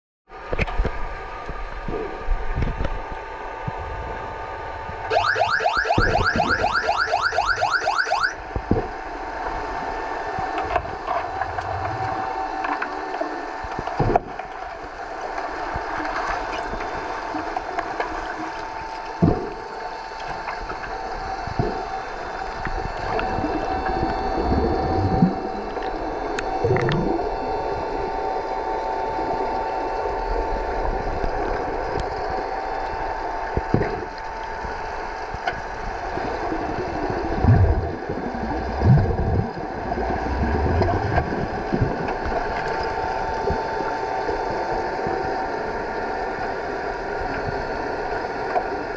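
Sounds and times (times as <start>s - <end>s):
steady underwater hum: 0.3s - 48.9s
warbling electronic chirps underwater: 5.1s - 8.4s, 26.6s - 27.3s
knocks and thuds underwater: 8.6s - 8.9s, 13.7s - 14.4s, 19.2s - 19.7s, 33.5s - 34.2s, 37.0s - 42.9s.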